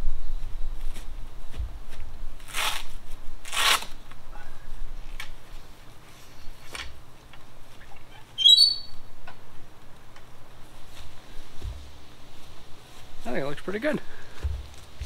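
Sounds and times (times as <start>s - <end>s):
short high bird chirp: 8.3s - 9.0s
fabric canopy rustling: 10.5s - 15.0s.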